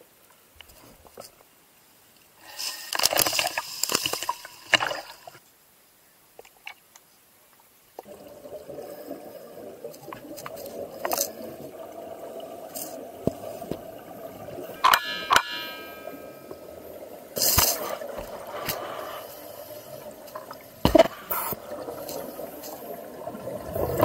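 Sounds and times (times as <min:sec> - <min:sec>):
exhaled bubbles rising: 0:08.0 - 0:14.8, 0:19.9 - 0:24.0
water sloshing and splashing: 0:08.0 - 0:24.0.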